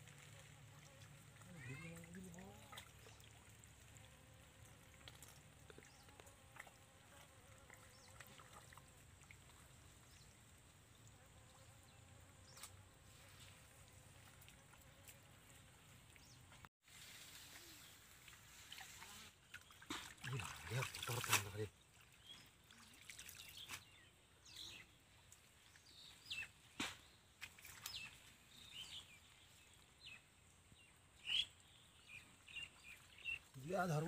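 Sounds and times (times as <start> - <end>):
faint trickling water: 0.0 - 12.0, 13.4 - 26.0
hands sloshing in mud and water: 18.1 - 23.9.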